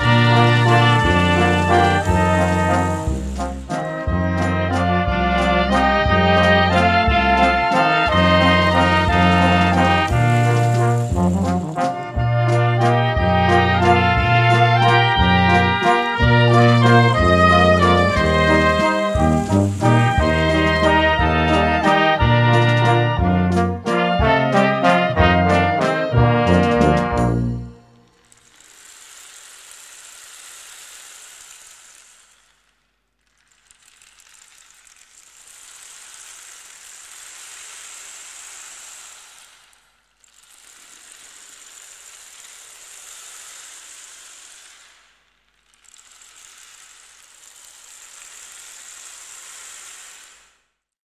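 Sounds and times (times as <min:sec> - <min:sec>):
sea waves washing on shore: 0:06.7 - 0:12.2, 0:16.8 - 0:21.0.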